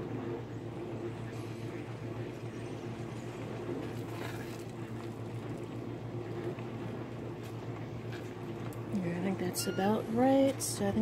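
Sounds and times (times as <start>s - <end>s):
wooden spoon stirring in pot: 2.9s - 9.0s.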